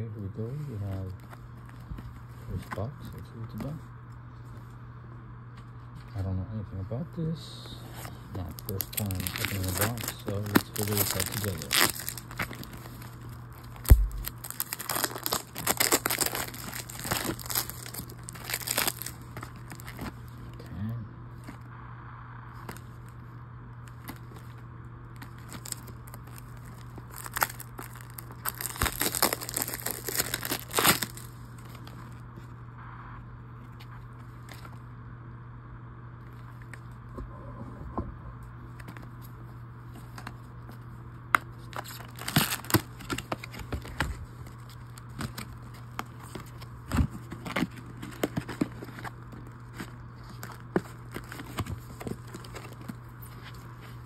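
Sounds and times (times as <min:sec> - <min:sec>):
steady low hum: 0:00.0 - 0:54.0
plastic shrink wrap crackling: 0:07.9 - 0:20.6, 0:25.2 - 0:32.2, 0:41.6 - 0:54.0.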